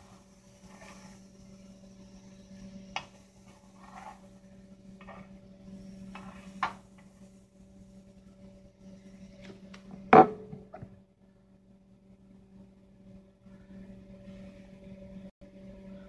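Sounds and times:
sandwich sizzling in a skillet: 0.0s - 1.6s, 3.0s - 5.3s.

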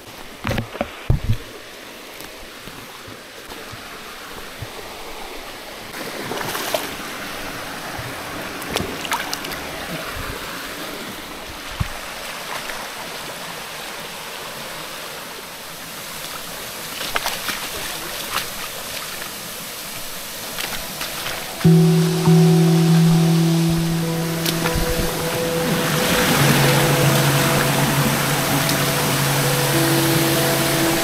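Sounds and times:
stream rushing: 10.5s - 31.0s.

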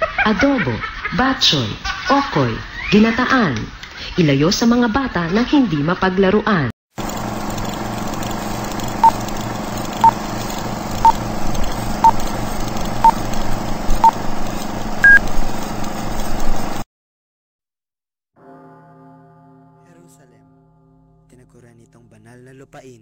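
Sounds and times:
humming film projector: 7.0s - 16.8s.

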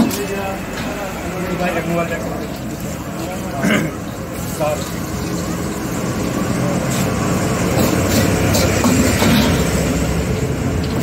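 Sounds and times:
gas burner rumble: 0.0s - 11.0s
food sizzling in a wok: 2.1s - 10.0s.

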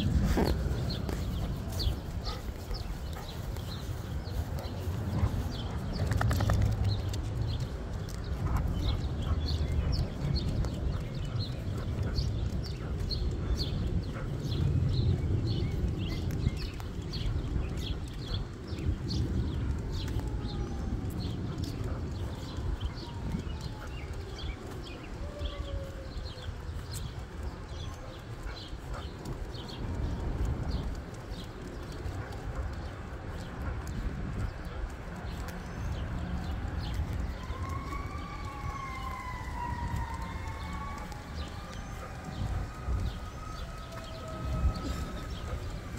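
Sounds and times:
footsteps on concrete: 0.0s - 13.4s
low rumble: 0.0s - 28.1s
small birds chirping: 0.0s - 45.9s.

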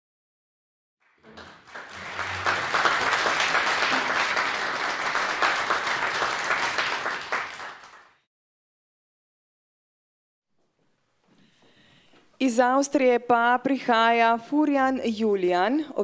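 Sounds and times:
audience applauding: 1.0s - 8.2s.

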